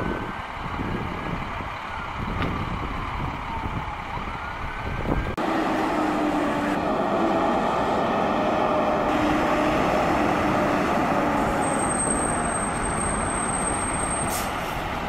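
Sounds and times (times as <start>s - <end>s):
diesel engine running: 5.2s - 15.0s.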